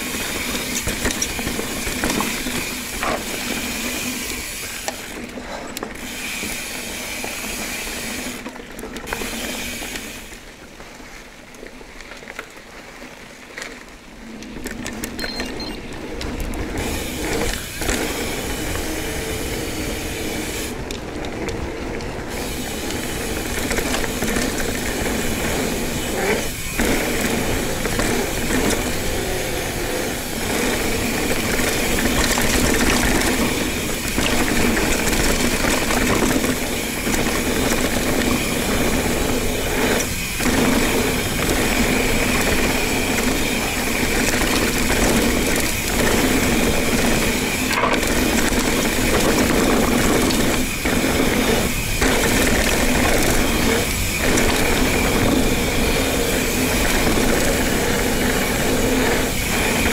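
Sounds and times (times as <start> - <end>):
tyres rolling on dirt trail: 0.0 - 59.9
bicycle freehub ratcheting: 16.4 - 59.9.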